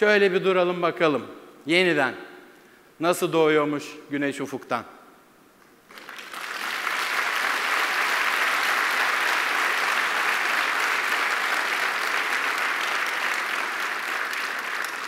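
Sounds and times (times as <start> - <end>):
audience applauding: 5.9 - 15.0.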